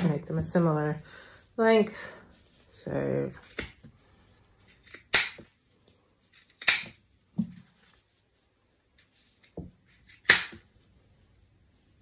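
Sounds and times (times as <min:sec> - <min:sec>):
scissors snipping fabric: 0:06.3 - 0:07.0.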